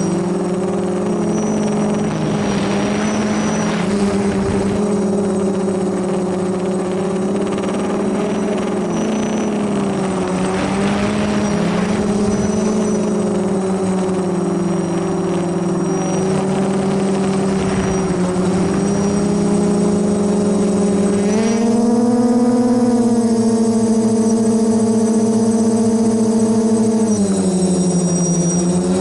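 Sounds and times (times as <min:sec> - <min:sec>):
quadcopter motors humming: 0:00.0 - 0:29.0.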